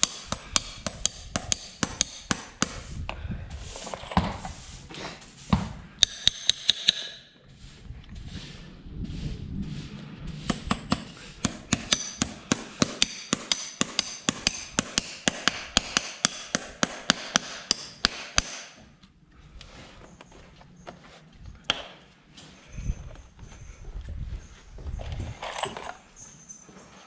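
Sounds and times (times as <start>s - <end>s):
hammer striking steel horseshoe: 0.0s - 2.9s, 6.0s - 7.3s, 10.5s - 18.8s.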